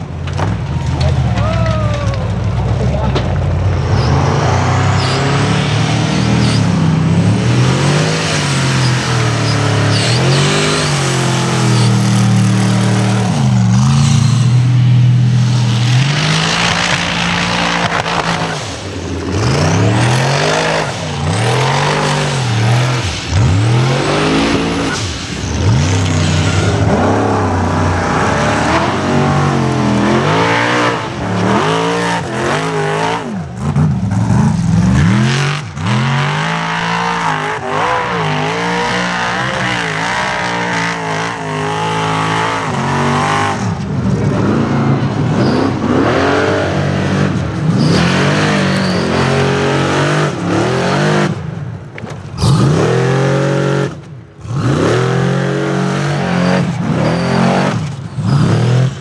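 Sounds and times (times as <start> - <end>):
off-road buggy engines revving: 0.0 - 59.0.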